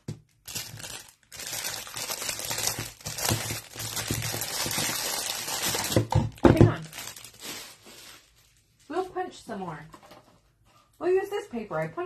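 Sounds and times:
plastic wrapping crinkling: 0.0 - 9.1.

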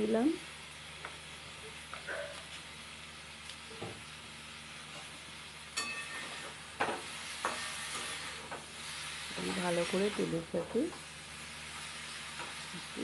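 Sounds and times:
food sizzling in hot oil: 0.0 - 13.0
spatula scraping a metal pan: 7.3 - 10.2.

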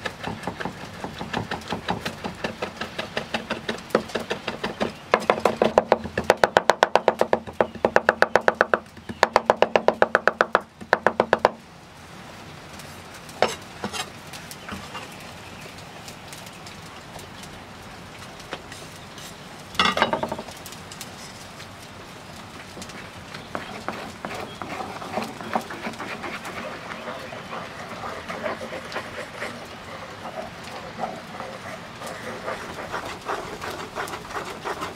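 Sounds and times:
knife chopping on wooden board: 0.1 - 11.6.

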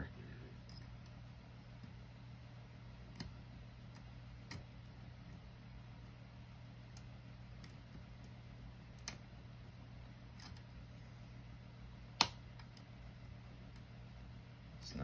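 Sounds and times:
steady low hum: 0.0 - 15.0
lock picking tools clicking: 0.7 - 1.2, 10.4 - 10.6.

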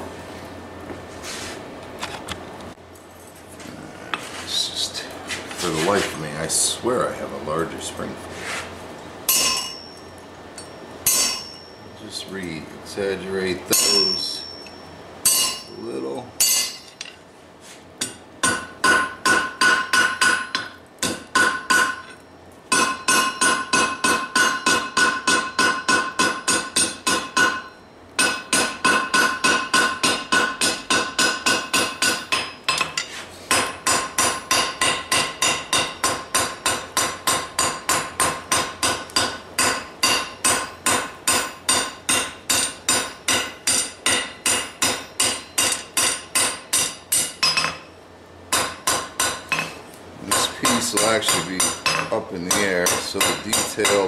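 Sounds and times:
hammer ringing on steel anvil: 9.3 - 11.8, 13.7 - 15.8, 16.4 - 17.1, 18.4 - 32.9, 50.3 - 54.0.

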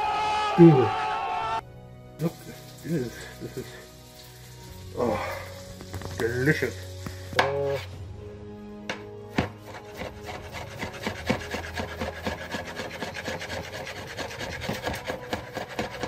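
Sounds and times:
knife chopping on plastic board: 9.3 - 16.0.

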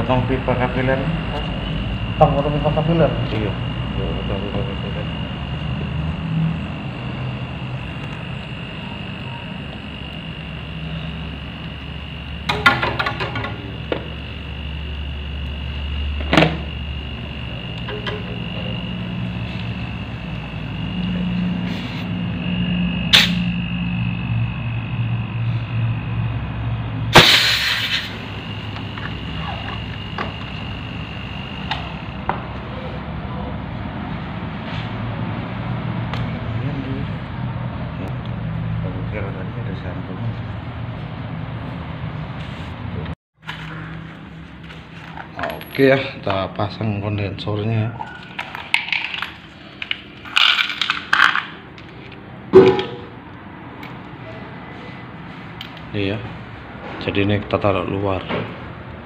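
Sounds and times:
low electrical hum: 0.0 - 37.4
thin high whine: 0.0 - 37.4, 38.0 - 58.2
loud rush of hiss: 27.1 - 28.4.

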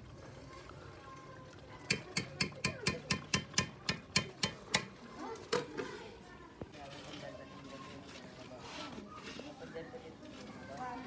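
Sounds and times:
metal spoon clinking on pot: 1.9 - 4.9.

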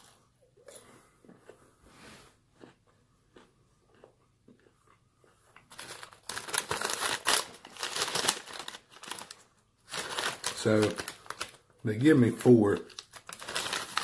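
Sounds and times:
paper sleeve crinkling: 5.7 - 14.0.

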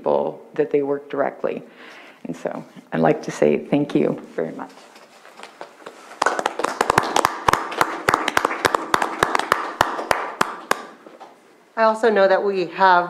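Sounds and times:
small group applauding: 5.8 - 11.3.

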